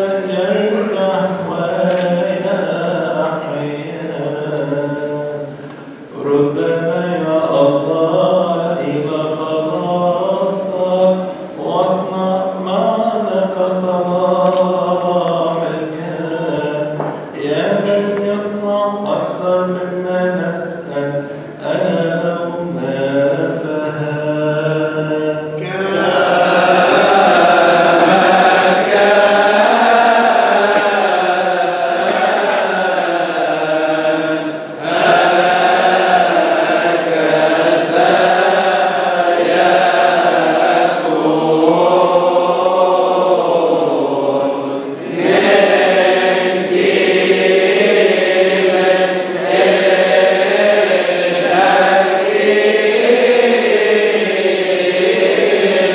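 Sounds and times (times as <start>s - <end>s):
man chanting: 0.0s - 55.9s
group of voices chanting: 25.6s - 55.9s.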